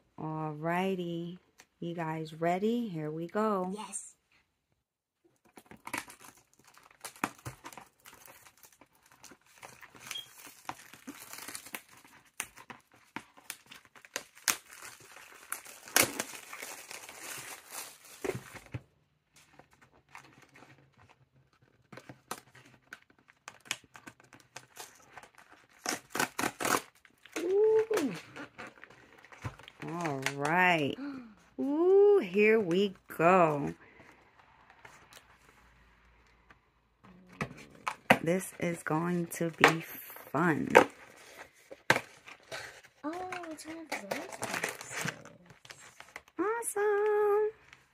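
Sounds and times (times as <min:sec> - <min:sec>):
plastic wrap crinkling and tearing: 0:05.4 - 0:31.0, 0:40.9 - 0:47.9.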